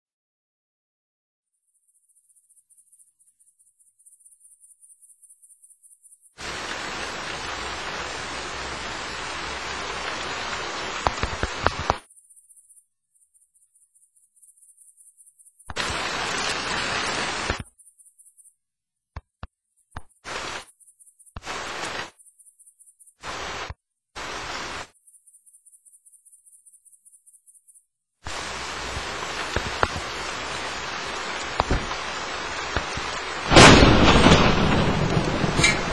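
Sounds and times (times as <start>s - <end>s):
rain falling: 6.4s - 12.0s, 15.7s - 17.6s, 20.3s - 20.6s, 21.4s - 22.1s, 23.2s - 24.9s, 28.3s - 35.9s
loud thunderclap: 32.7s - 35.9s.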